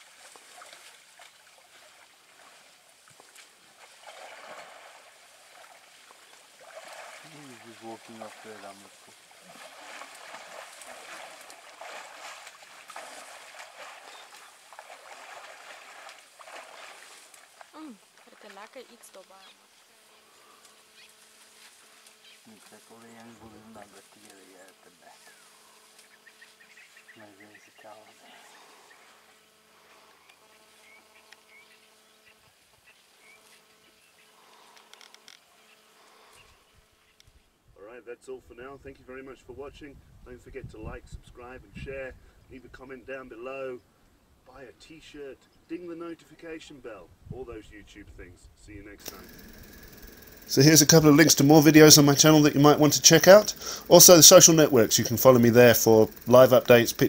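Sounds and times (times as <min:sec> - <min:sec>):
elephant splashing in water: 0:00.0 - 0:18.5
insects buzzing: 0:00.0 - 0:37.4, 0:49.0 - 0:57.0
bird chirps: 0:14.0 - 0:14.5.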